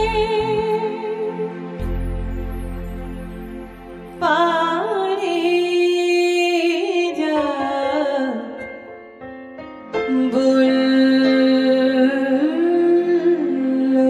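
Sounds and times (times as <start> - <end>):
woman singing with vibrato: 0.0 - 1.6, 4.2 - 8.6, 10.0 - 14.0.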